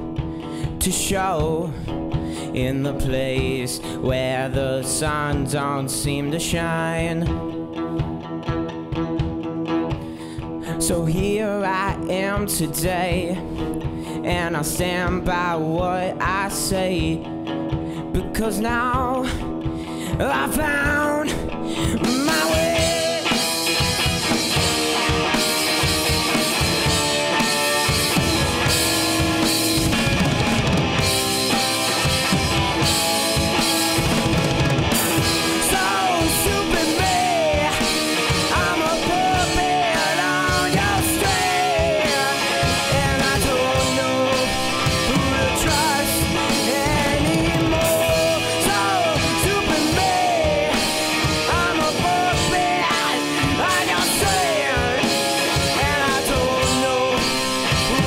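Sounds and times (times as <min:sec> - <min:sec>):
lead guitar with bent notes: 0:00.0 - 0:58.0
rock band playing: 0:00.0 - 0:58.0.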